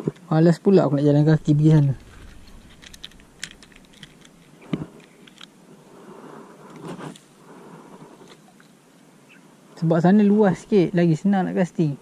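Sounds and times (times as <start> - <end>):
fishing reel clicks and rustles: 1.5 - 5.6.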